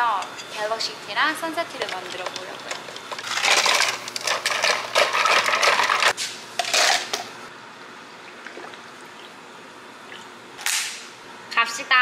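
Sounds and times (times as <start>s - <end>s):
ice cubes clinking in cup: 1.8s - 7.1s.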